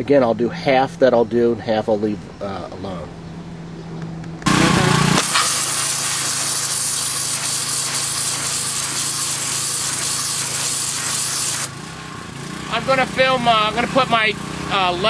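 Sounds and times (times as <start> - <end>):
pump hum: 4.4 - 15.0
pressure washer spray hissing: 4.5 - 12.0.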